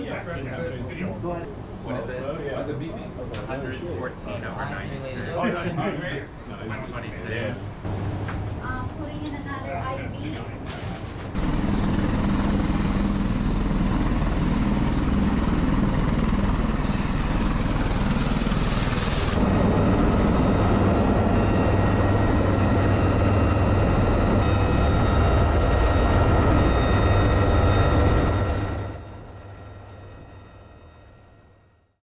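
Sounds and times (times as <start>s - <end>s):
helicopter running: 11.3s - 31.9s
low rotor drone: 11.3s - 32.0s
high turbine whine: 11.4s - 32.0s.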